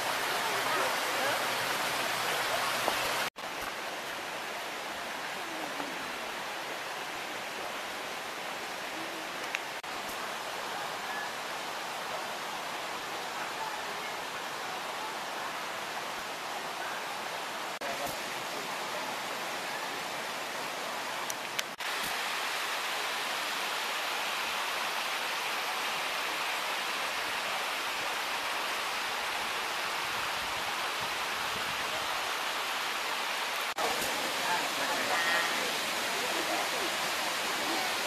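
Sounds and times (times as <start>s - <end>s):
waterfall rushing: 0.0s - 38.0s.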